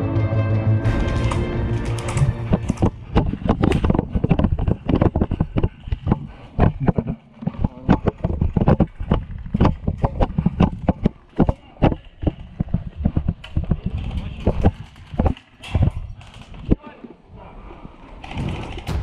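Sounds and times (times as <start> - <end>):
gear jostling against camera: 0.9 - 16.8
wind on microphone: 2.4 - 11.2.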